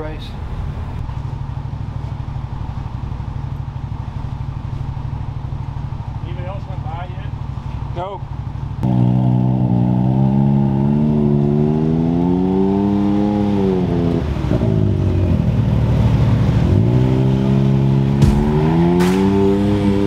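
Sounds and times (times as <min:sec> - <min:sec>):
race car engine revving: 0:08.8 - 0:20.0.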